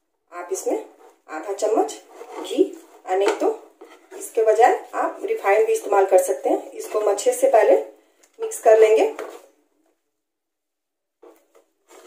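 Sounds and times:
spatula scraping pan: 0.8s - 7.5s, 11.3s - 12.0s.

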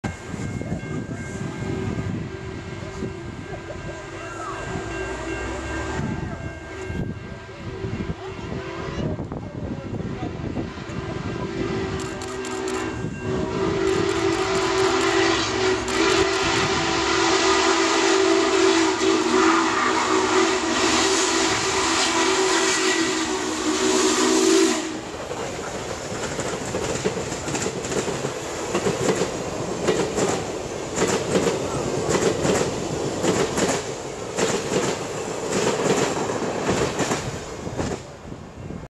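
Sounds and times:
train rushing by: 0.0s - 38.9s
steam whistle blast: 10.7s - 25.1s
wheels clicking over rail joints: 25.2s - 38.1s.

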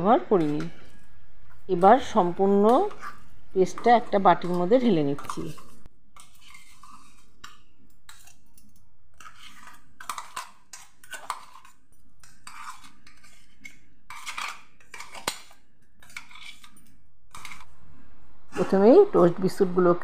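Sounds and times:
scraping on steel jar: 2.6s - 8.4s, 9.2s - 17.7s.

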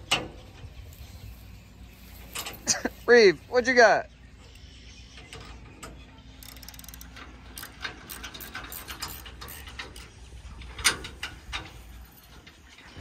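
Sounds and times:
metal ratchet clicking: 6.4s - 10.2s.

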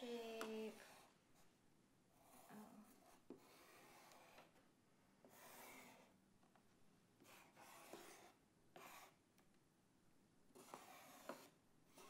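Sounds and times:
pencil scratching on paper: 0.5s - 4.6s, 5.2s - 6.2s, 7.2s - 9.2s, 10.5s - 12.0s.

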